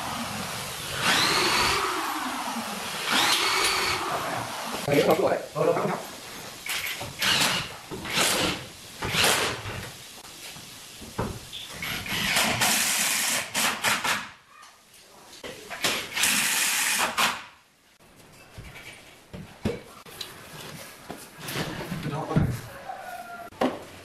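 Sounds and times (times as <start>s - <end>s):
cordless drill boring into wood: 0.9s - 2.1s, 3.0s - 4.2s, 7.2s - 8.5s.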